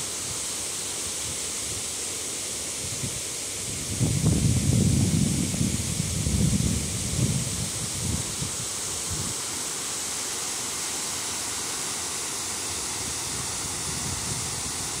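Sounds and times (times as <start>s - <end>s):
water rushing over spillway: 0.0s - 15.0s
wind buffeting microphone: 3.0s - 9.4s, 13.2s - 15.0s.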